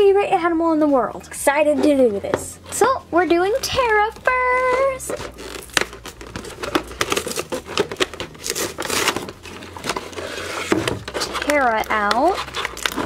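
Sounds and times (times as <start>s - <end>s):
plastic packaging crinkling: 4.2s - 13.0s
packaging tearing: 5.0s - 13.0s.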